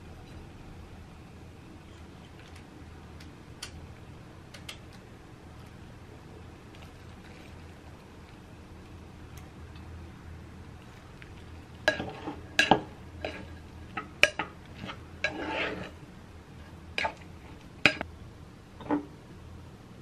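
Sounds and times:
scraping and rustling: 10.8s - 16.0s
dishes and cutlery clinking: 11.9s - 16.0s, 17.8s - 18.0s.

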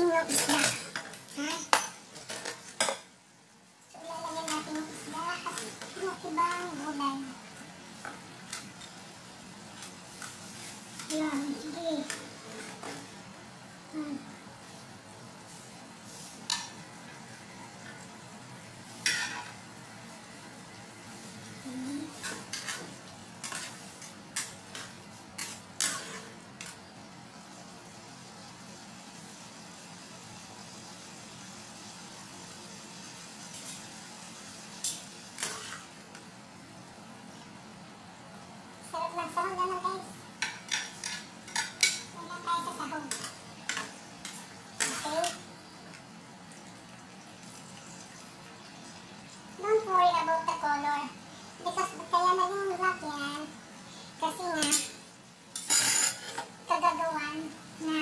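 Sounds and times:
spatula and tongs scraping wok: 19.0s - 19.6s, 21.9s - 26.9s, 34.8s - 36.0s, 40.4s - 45.5s, 54.3s - 56.6s.

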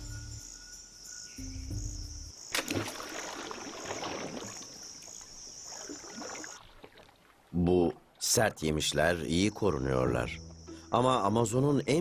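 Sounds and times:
insect chirring: 0.0s - 7.1s, 8.8s - 12.0s
seed pod bursting crack: 2.5s - 3.2s
seeds scattering and landing: 2.5s - 5.2s.

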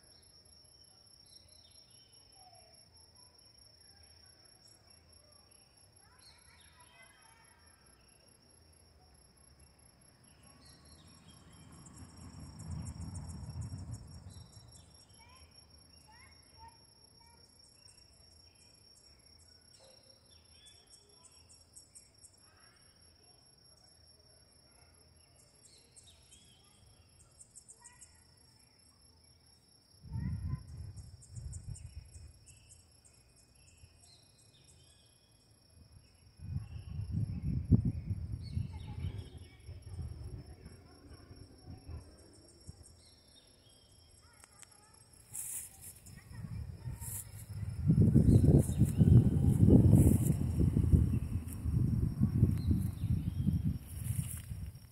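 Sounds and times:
crickets trilling: 0.0s - 54.9s
low rumbles: 46.5s - 53.9s.

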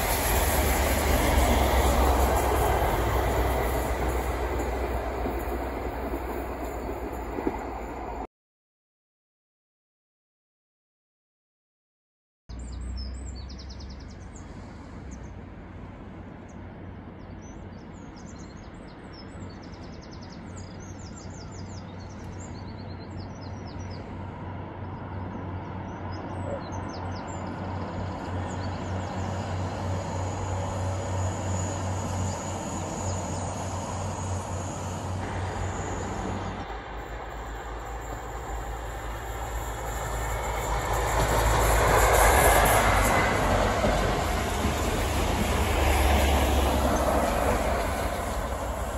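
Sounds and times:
diesel train rumble: 0.0s - 8.3s, 12.5s - 48.9s
steady high whine: 28.9s - 45.3s.

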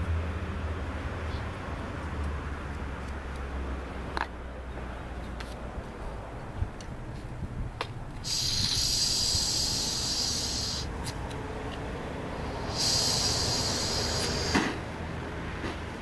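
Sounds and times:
blowtorch hissing: 8.2s - 10.9s, 12.4s - 14.8s.

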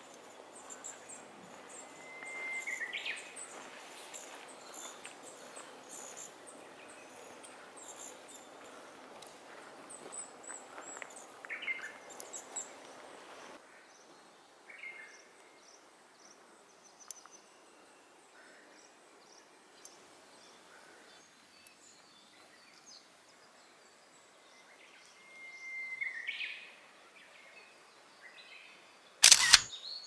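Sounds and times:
wild birds chirping: 0.0s - 14.1s.

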